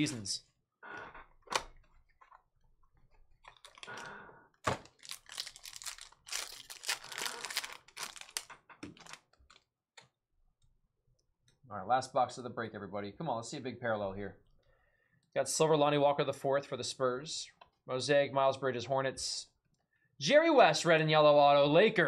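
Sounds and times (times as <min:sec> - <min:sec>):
foil wrapper crinkling and ripping: 0:03.4 - 0:04.1, 0:04.7 - 0:09.6.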